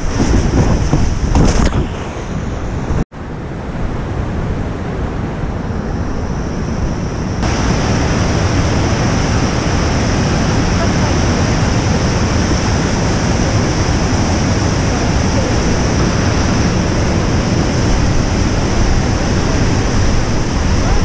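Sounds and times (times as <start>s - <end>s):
rushing whitewater rapids: 7.4s - 21.0s.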